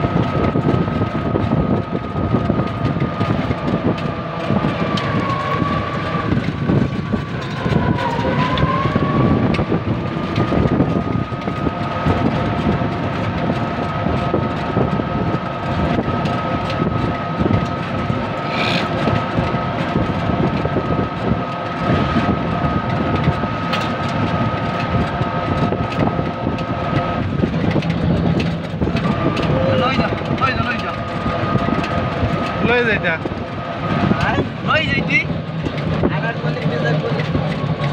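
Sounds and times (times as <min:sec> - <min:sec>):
high motor whine: 0:00.0 - 0:37.9
road rumble and rattling: 0:00.0 - 0:37.9.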